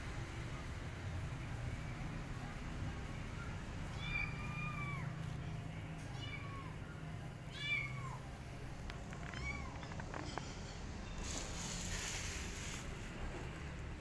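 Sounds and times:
kitten meowing: 7.5 - 8.3, 9.0 - 10.1.

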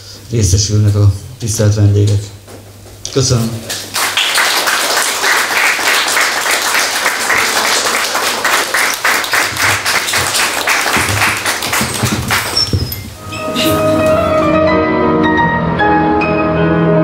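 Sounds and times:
audience clapping: 3.6 - 13.0.

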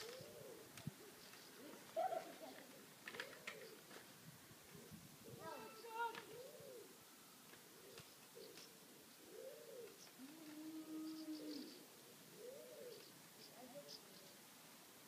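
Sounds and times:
pigeon cooing: 0.0 - 3.9, 4.7 - 7.0, 7.6 - 14.2
small birds chirping: 0.0 - 3.9, 4.9 - 6.9, 7.8 - 14.4.

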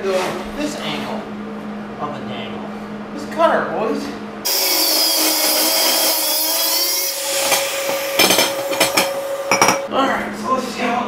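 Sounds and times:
angle grinder cutting steel: 4.5 - 9.9.

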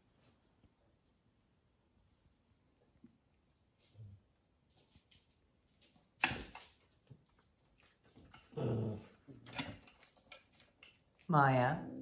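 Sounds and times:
small dog growling: 8.5 - 9.2.

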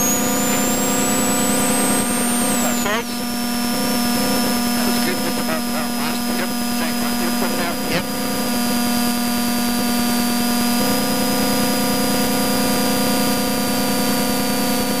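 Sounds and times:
intercom hiss: 0.0 - 8.7
thin steady high whine: 0.0 - 15.0.

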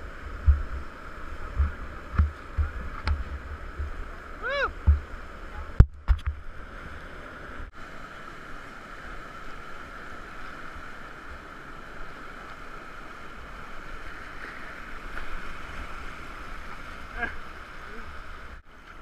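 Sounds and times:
whitewater rapids rushing: 0.0 - 5.8.

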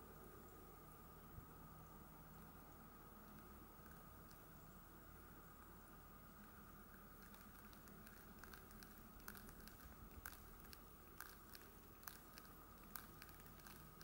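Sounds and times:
ice crackling and clicking: 7.2 - 14.0.

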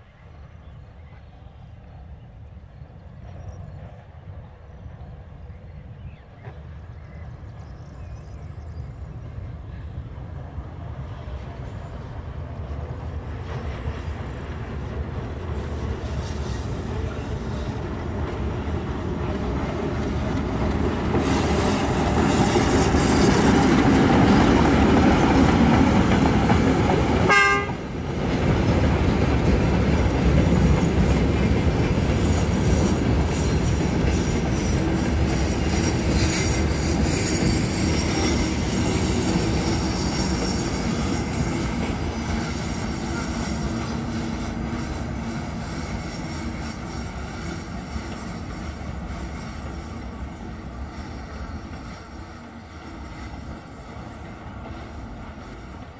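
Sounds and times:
short train horn toot: 27.2 - 27.9.

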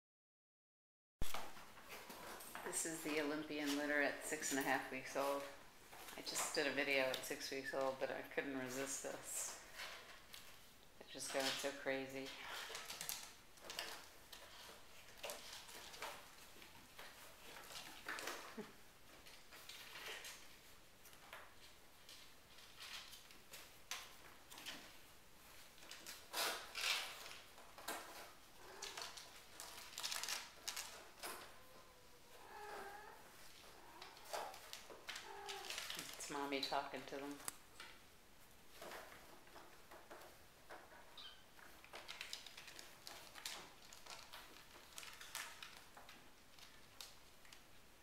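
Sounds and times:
kittens scuffling: 1.2 - 48.0
cat chirping: 41.1 - 41.5.

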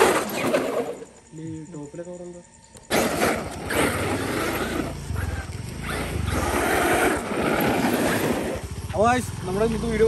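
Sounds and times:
rc truck rumbling over pavers: 0.0 - 1.2, 2.9 - 10.0.

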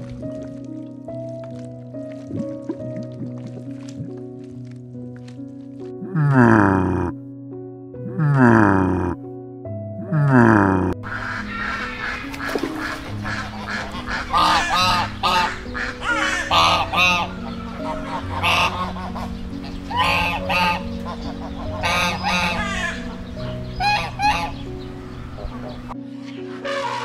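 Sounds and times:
background music with low notes: 0.0 - 27.0
ducks honking: 10.2 - 27.0.

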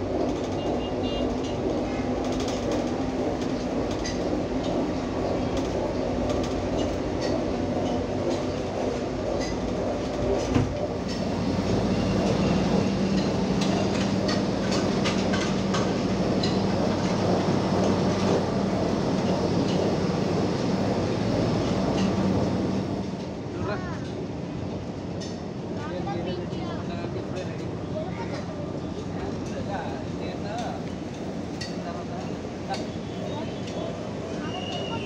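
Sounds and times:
vehicle rattling ride noise: 0.0 - 23.3.

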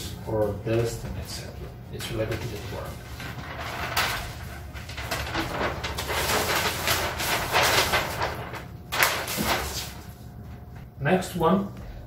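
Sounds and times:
paper sheets rustling: 2.0 - 10.8.

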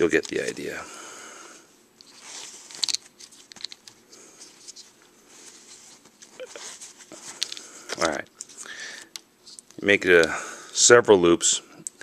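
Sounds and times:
thread rustling: 2.0 - 8.1.

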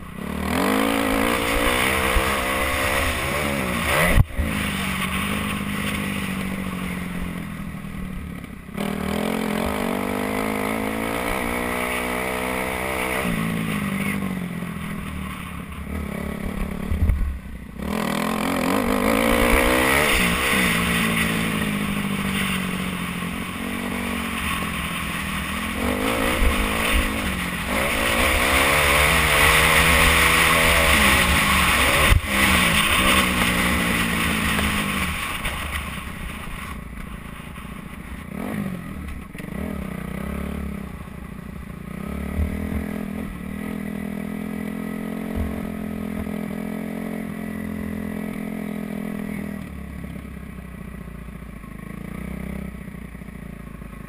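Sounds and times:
dirt bike engine revving: 0.0 - 17.2, 17.8 - 37.6, 41.9 - 49.5
loud rushing wind noise: 16.0 - 36.5.

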